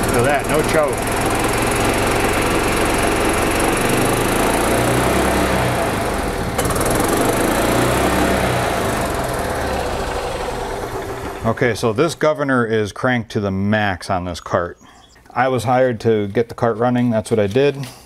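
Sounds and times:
small engine hitting rev limiter: 0:00.0 - 0:12.2.

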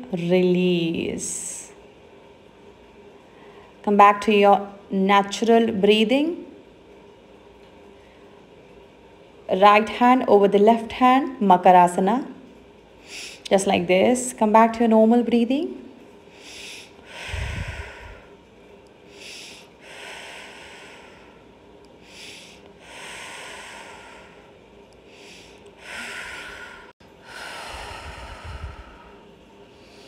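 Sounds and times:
woman breathing slowly: 0:03.2 - 0:03.8, 0:07.9 - 0:08.6, 0:13.0 - 0:13.5, 0:16.2 - 0:30.0.

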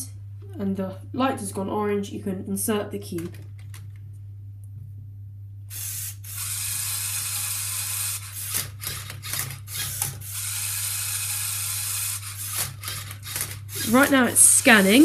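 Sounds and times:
robot motors whirring: 0:05.7 - 0:15.0.

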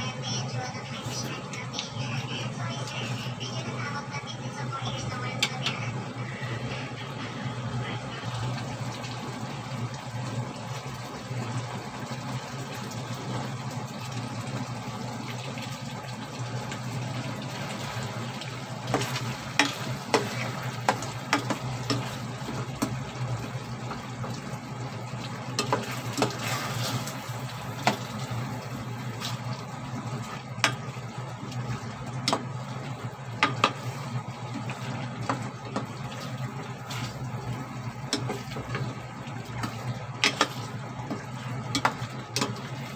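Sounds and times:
ribs simmering in sauce: 0:00.1 - 0:42.9
spatula knocking and scraping pot: 0:18.9 - 0:22.2, 0:33.4 - 0:34.0, 0:39.6 - 0:42.6.

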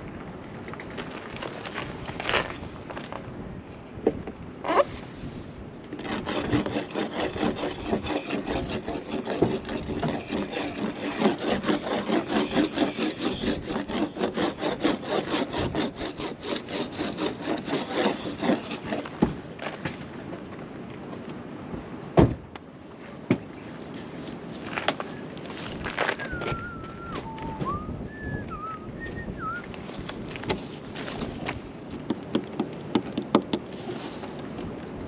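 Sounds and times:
wax rubbed on surfboard: 0:06.3 - 0:19.0.

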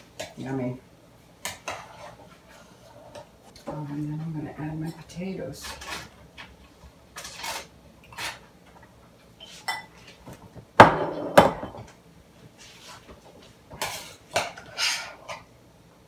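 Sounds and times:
spoon stirring in a pan: 0:01.4 - 0:10.2, 0:12.6 - 0:15.5
spatula scraping a glass bowl: 0:13.8 - 0:15.4.

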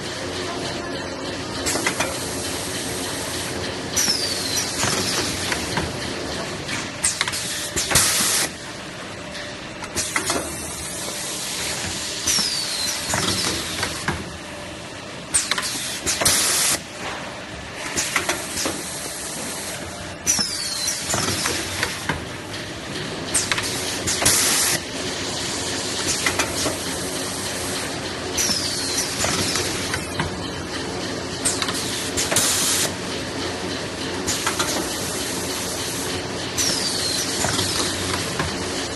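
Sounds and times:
machine mechanical clatter: 0:00.1 - 0:08.6, 0:09.2 - 0:14.5, 0:15.2 - 0:38.9.

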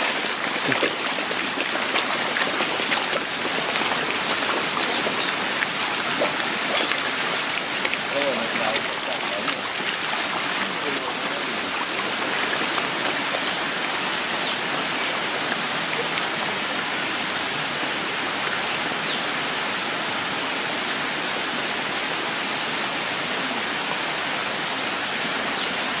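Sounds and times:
water rushing and splashing: 0:00.0 - 0:26.0.

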